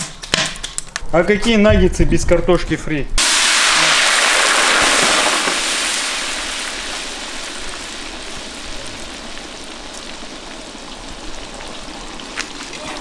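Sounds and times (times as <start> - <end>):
fries sizzling in hot oil: 3.2 - 13.0
oil bubbling with pops: 3.2 - 13.0.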